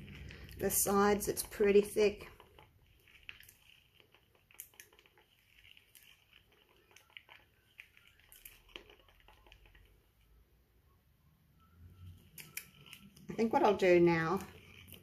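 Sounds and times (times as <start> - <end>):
stick scraping thick paint: 12.4 - 15.0.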